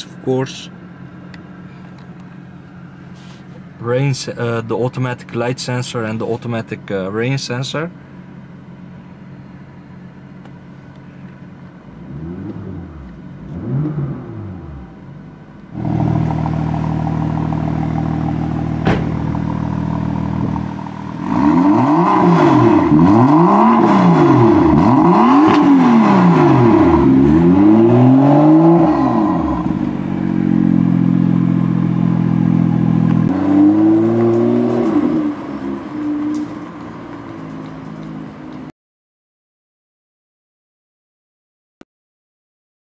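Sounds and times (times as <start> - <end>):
car engine idling and revving: 0.0 - 38.7
exhaust pop: 15.8 - 27.6.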